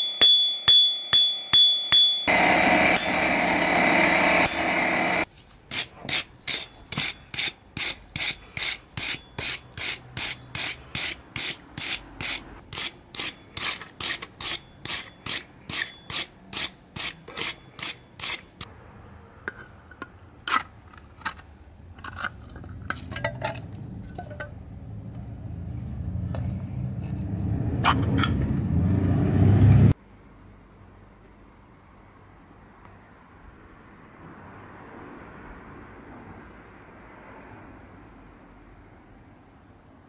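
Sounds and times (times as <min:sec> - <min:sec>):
hammer striking steel on anvil: 0:00.0 - 0:18.7
continuous scraping: 0:04.6 - 0:18.7, 0:19.4 - 0:24.6, 0:25.5 - 0:28.4.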